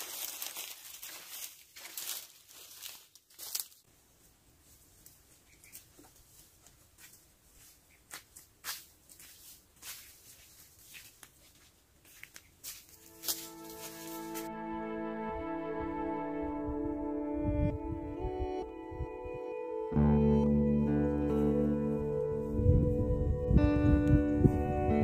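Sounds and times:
dry leaves crackling: 0.0s - 3.9s, 8.6s - 14.5s
soft music: 13.0s - 25.0s.

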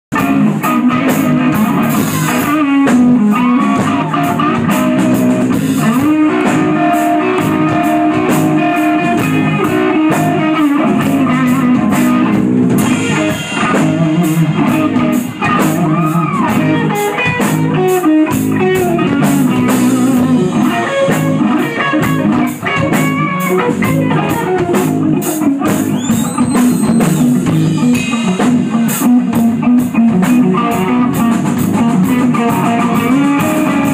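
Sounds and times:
drum kit beat: 0.1s - 33.9s
electric guitar riff: 0.1s - 33.9s.

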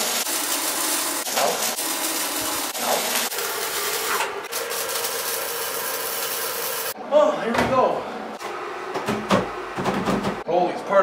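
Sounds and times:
welder arc crackling and sizzling: 0.0s - 7.0s.

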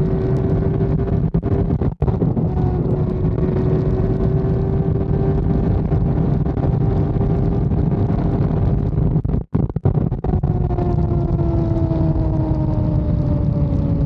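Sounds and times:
motorcycle engine at high revs: 0.0s - 9.0s
wind buffeting microphone: 0.0s - 14.0s.

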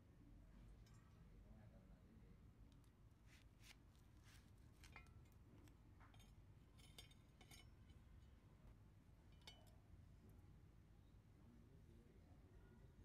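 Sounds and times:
faint clicks and metal clinks: 0.6s - 1.4s, 4.7s - 10.4s.

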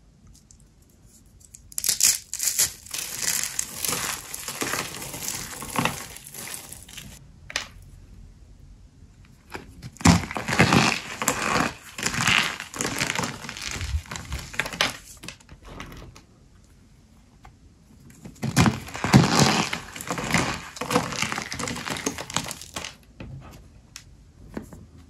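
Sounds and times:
dry soap crunching and crackling: 0.3s - 7.2s, 9.4s - 16.1s, 18.1s - 23.0s.

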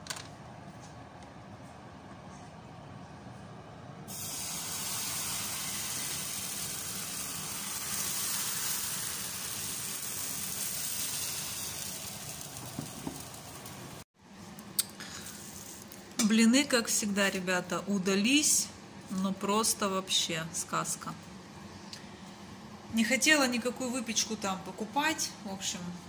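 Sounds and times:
batter sizzling in a frying pan: 4.1s - 14.0s.

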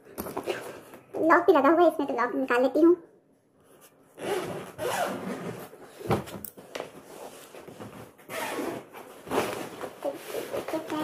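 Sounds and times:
suitcase zipper opening: 4.2s - 5.7s, 8.3s - 9.7s.

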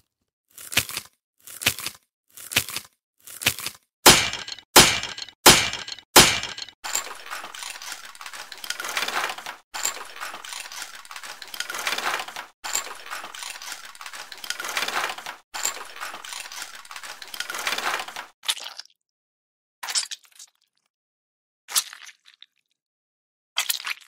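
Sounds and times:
bone crunching crackling: 0.5s - 6.7s.

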